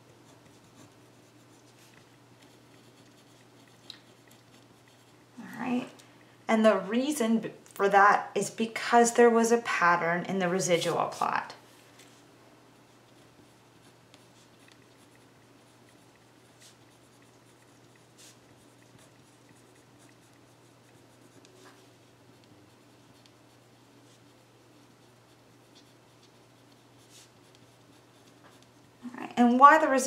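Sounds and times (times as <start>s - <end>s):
pen scratching on paper: 0.2s - 5.3s, 12.8s - 28.8s.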